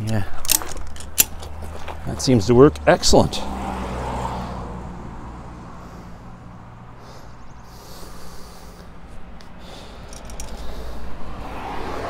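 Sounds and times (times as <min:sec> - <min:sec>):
man breathing heavily: 0:04.2 - 0:11.6.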